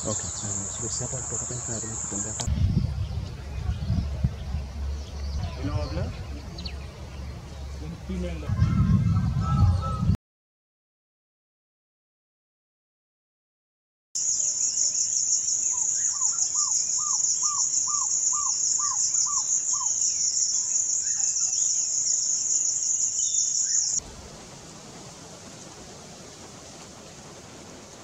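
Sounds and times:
high pulsing insect trill: 0.0s - 2.5s, 14.2s - 24.0s
steady hiss: 0.0s - 2.5s, 14.2s - 28.0s
owlet whistled calls: 14.2s - 24.0s.

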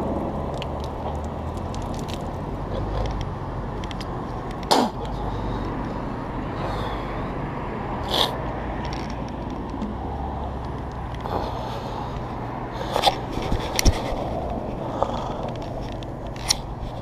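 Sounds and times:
vehicle engine idling: 0.0s - 17.0s
scrapes against camera: 12.8s - 17.0s.

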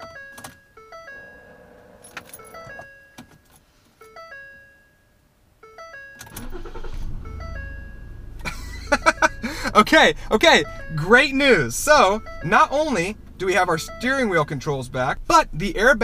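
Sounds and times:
dashboard chime: 0.0s - 3.4s, 7.2s - 14.9s
car engine cranking and starting: 1.0s - 2.8s, 6.2s - 16.0s
ignition key clicks: 2.0s - 2.8s.

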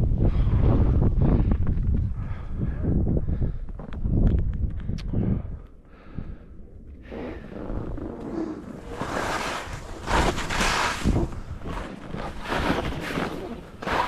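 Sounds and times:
wind buffeting microphone: 0.0s - 13.0s
skis scraping through snow: 8.0s - 14.0s.

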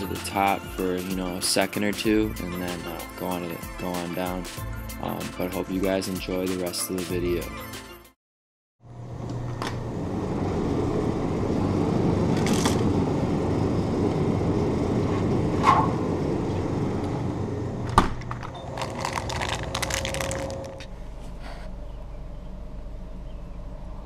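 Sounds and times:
drinks cooler humming: 8.9s - 24.0s
snack packet crinkling: 18.4s - 20.9s.

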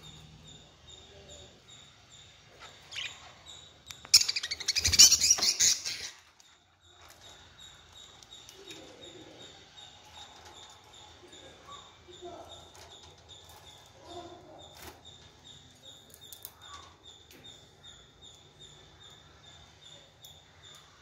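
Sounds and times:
budgerigars chirping: 2.6s - 6.2s.

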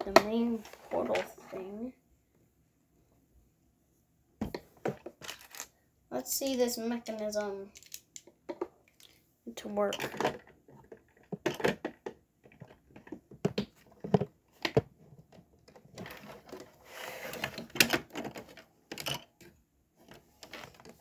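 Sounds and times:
plastic bricks clicking: 7.7s - 8.3s.

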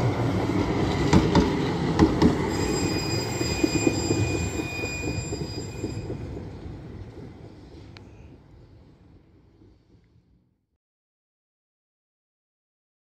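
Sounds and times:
tram rumbling: 0.0s - 10.6s
tram wheel knocks: 0.9s - 7.4s.

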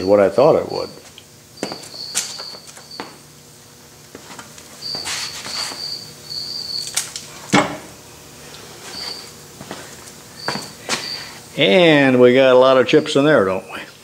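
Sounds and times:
high chirping: 1.6s - 3.1s, 4.8s - 7.0s, 10.4s - 11.4s.

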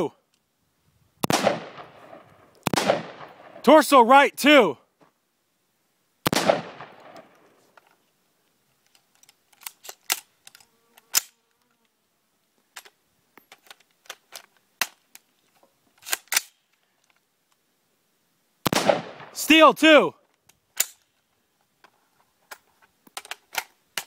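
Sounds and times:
rifle shots: 1.2s - 3.7s, 6.2s - 7.3s, 18.6s - 19.7s
sharp short clicks and cracks: 8.8s - 11.4s, 16.0s - 17.2s.

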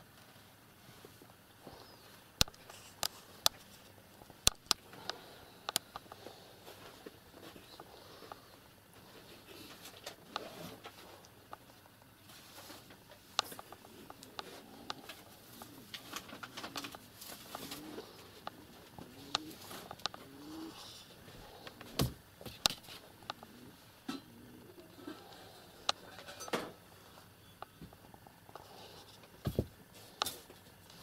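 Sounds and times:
kittens scratching and tapping: 2.4s - 24.3s.

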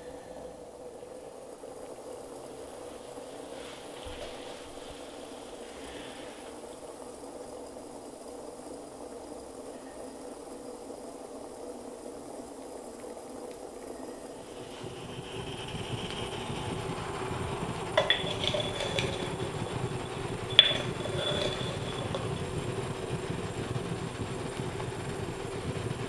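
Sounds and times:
water bubbling in glass globe: 14.4s - 26.0s.

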